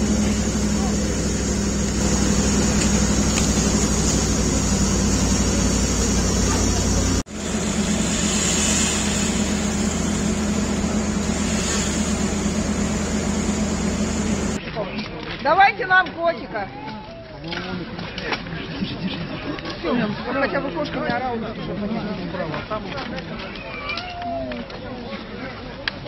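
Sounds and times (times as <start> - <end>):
fire engine motor and pump: 0.0 - 14.6
even hiss: 0.2 - 14.6.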